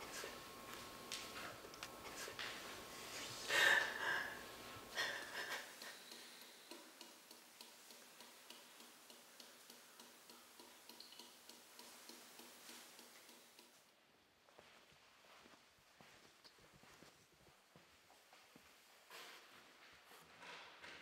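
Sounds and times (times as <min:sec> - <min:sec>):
wall clock ticking: 0:05.0 - 0:13.8.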